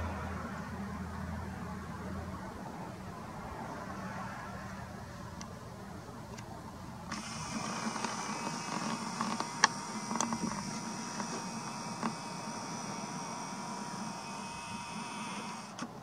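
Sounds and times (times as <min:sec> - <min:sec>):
camera zoom motor whirring: 0:07.0 - 0:16.0.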